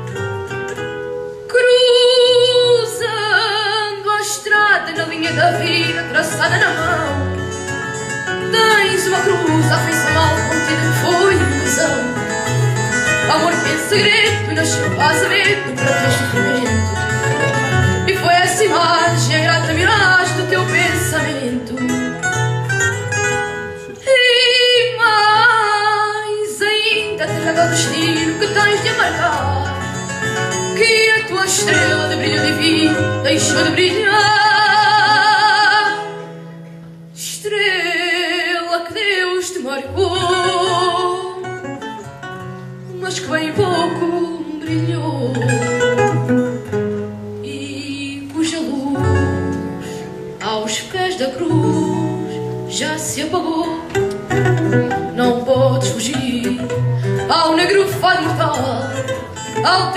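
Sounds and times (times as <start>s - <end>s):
plucked guitars: 0.0s - 59.9s
boy singing into a microphone: 30.8s - 36.2s.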